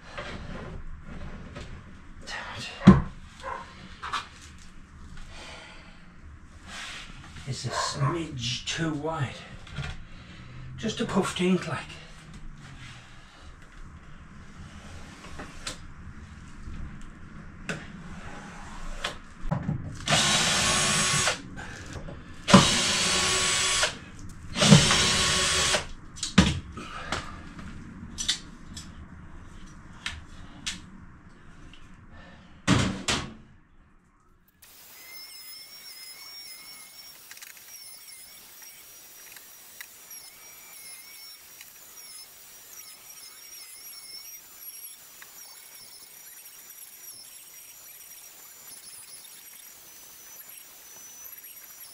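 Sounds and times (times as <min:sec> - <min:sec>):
cordless drill running: 0:20.1 - 0:21.4, 0:22.4 - 0:24.0, 0:24.6 - 0:25.9, 0:34.6 - 0:51.9
faint high chirp: 0:34.7 - 0:51.9.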